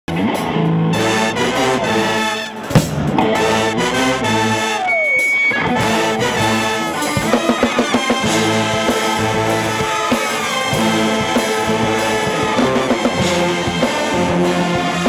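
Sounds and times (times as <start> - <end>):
pep band playing: 0.1 - 15.0
brass slide: 0.9 - 15.0
sharp drum hits: 2.6 - 3.4.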